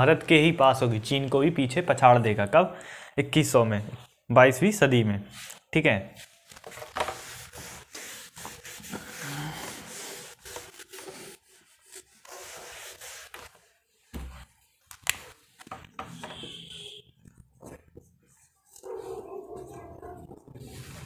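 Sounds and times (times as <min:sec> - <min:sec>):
rubbing and scraping: 0:05.3 - 0:13.8, 0:17.2 - 0:21.0.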